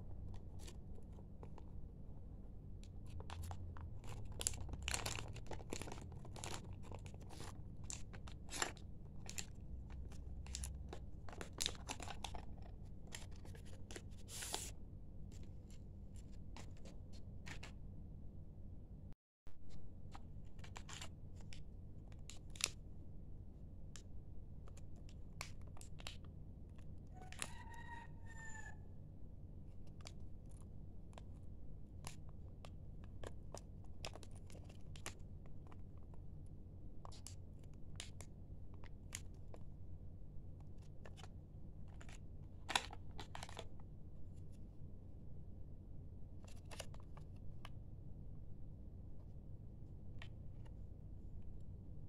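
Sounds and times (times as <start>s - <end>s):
steady low hum: 0.0s - 27.1s, 28.8s - 52.0s
plastic bags crinkling: 3.1s - 9.5s.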